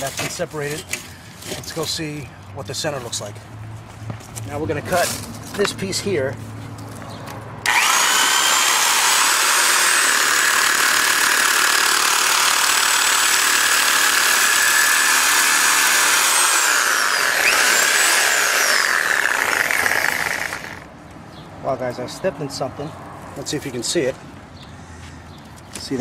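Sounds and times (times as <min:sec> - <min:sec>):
power saw cutting steel: 0:07.6 - 0:20.9.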